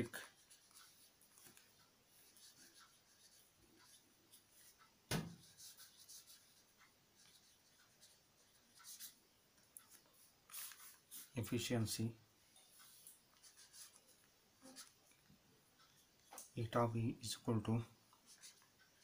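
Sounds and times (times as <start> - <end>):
sharp knock: 5.1 - 5.4.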